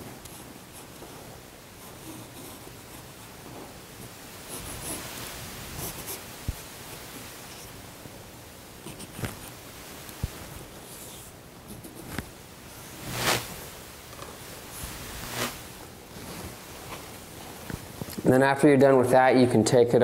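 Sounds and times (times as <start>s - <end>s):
steady hiss: 0.0s - 20.0s
hands swishing over vinyl: 9.0s - 18.1s.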